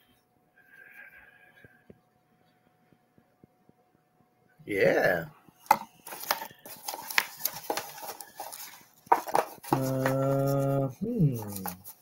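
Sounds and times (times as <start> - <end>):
rustling: 5.6 - 12.0.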